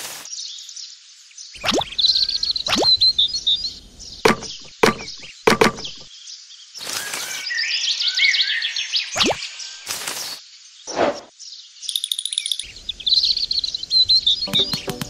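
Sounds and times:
small birds chirping: 0:00.1 - 0:15.0
sharp clicks: 0:04.3 - 0:06.1.

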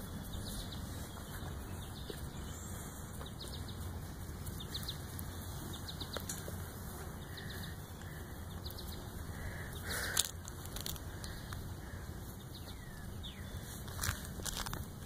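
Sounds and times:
phone rustling against clothing: 0:10.1 - 0:11.3, 0:13.7 - 0:15.0.

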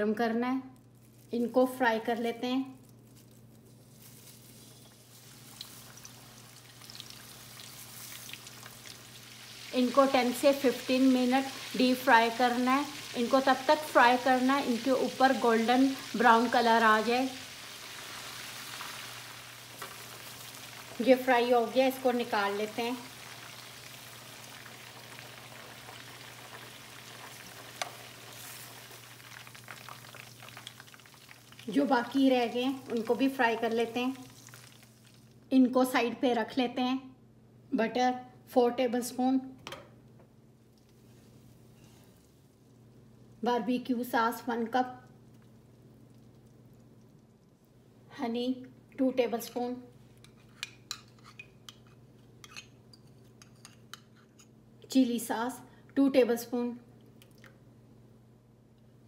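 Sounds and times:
oil crackling: 0:02.7 - 0:35.5
chicken frying in hot oil: 0:03.9 - 0:35.4.

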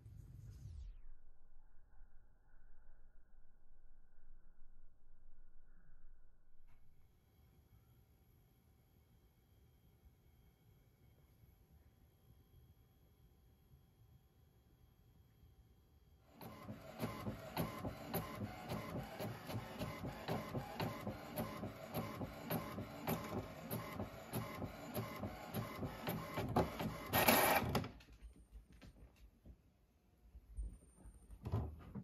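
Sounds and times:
printer printing: 0:16.3 - 0:28.0.

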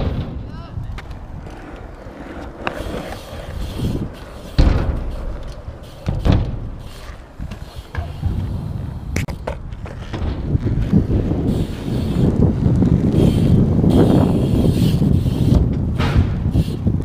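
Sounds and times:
heavy thuds of wheels landing: 0:00.0 - 0:01.4, 0:02.4 - 0:11.8, 0:15.5 - 0:17.0
bike tyres rumbling on concrete: 0:00.0 - 0:17.0.

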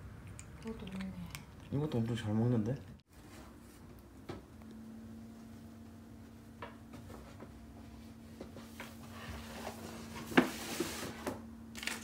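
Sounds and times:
plastic crinkling: 0:11.7 - 0:12.0.

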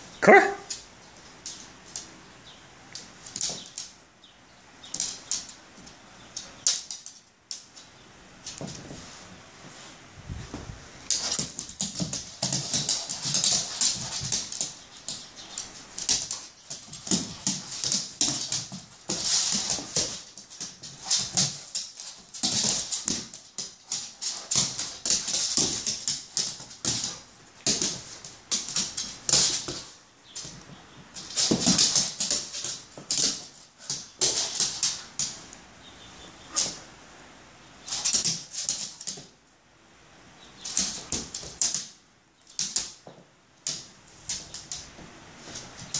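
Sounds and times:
dog claws clicking on wooden floor: 0:00.6 - 0:02.2, 0:02.9 - 0:04.0, 0:04.8 - 0:08.8, 0:11.1 - 0:35.5, 0:37.9 - 0:39.3, 0:40.6 - 0:45.9.

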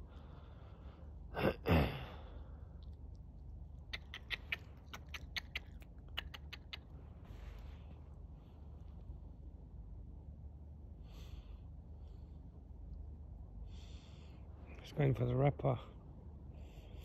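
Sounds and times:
fox chewing with sharp clicks: 0:02.8 - 0:07.6.

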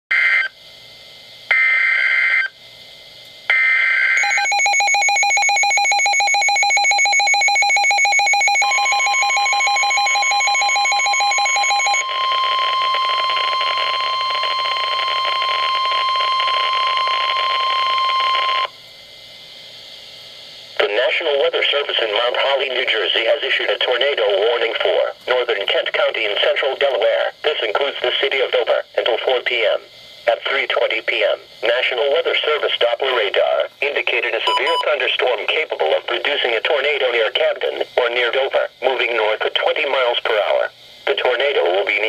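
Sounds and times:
steady warning alarm tone: 0:01.5 - 0:02.6, 0:03.5 - 0:18.8, 0:34.2 - 0:42.0
rapid pulsing beep alarm: 0:03.5 - 0:18.7, 0:34.4 - 0:35.0.

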